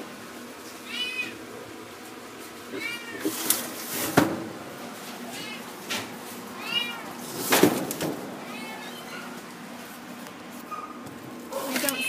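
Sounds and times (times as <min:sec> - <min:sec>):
cat meowing: 0:00.8 - 0:01.4, 0:02.7 - 0:03.4, 0:05.3 - 0:05.7, 0:06.6 - 0:07.2, 0:08.4 - 0:09.4.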